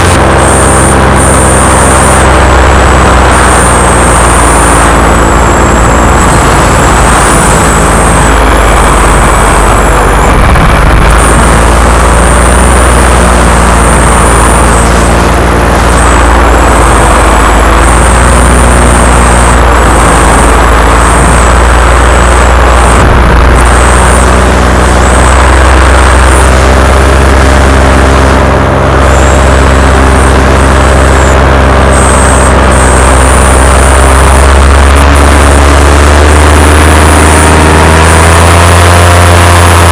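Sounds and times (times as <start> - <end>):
paramotor engine and propeller: 0.0 - 39.9.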